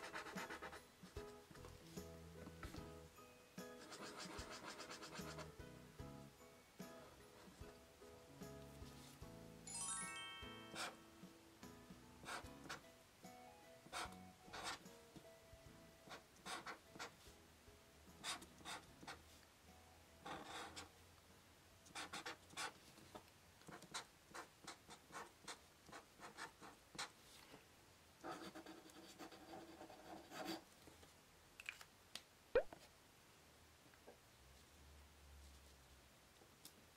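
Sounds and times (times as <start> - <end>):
marker scratching on paper: 0.0 - 1.2, 3.8 - 5.6, 12.2 - 12.8, 13.9 - 14.8, 16.1 - 17.2, 18.2 - 19.2, 20.2 - 20.9, 21.9 - 23.1, 23.7 - 27.2, 28.2 - 30.6.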